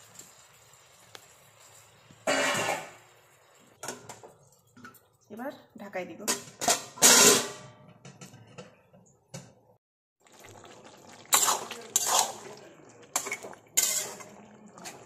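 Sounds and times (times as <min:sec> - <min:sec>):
metal spatula scraping a pan: 0:02.2 - 0:03.0, 0:06.6 - 0:08.5, 0:11.2 - 0:15.0.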